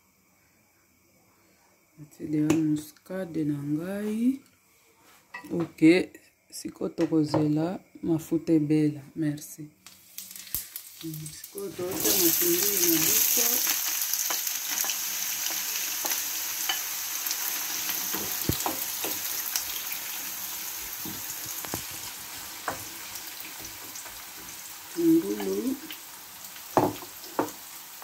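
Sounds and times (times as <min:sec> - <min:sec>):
onions sizzling in hot oil: 0:09.8 - 0:28.0.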